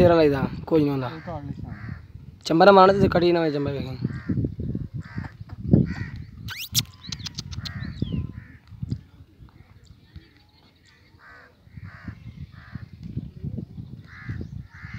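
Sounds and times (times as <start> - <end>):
crows cawing: 1.1 - 2.0, 4.0 - 4.4, 5.0 - 6.2, 11.2 - 12.9, 14.1 - 14.9
high-pitched squeaks and clicks: 6.5 - 7.8.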